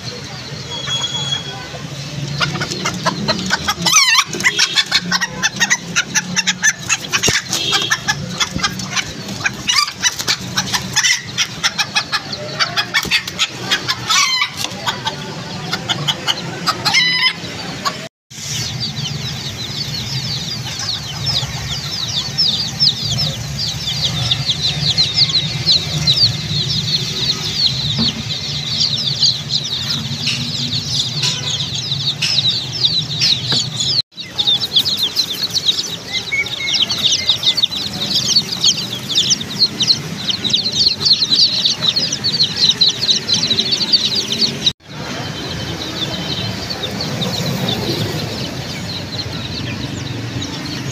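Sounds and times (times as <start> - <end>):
chicken clucking: 0.0 - 50.9
chicks peeping: 0.0 - 50.9.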